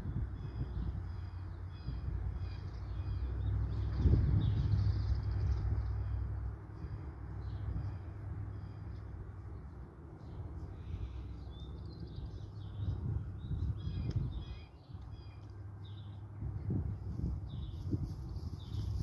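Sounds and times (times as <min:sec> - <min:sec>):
steady low rumble: 0:00.0 - 0:19.0
small birds chirping: 0:06.8 - 0:19.0.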